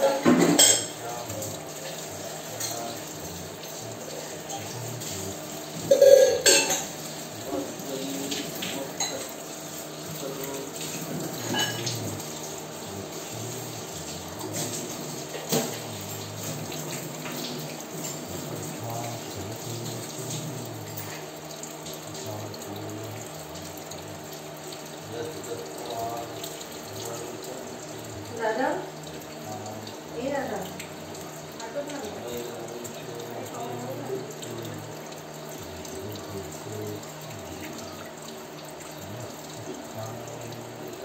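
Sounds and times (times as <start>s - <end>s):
tap water running: 0.0s - 41.0s.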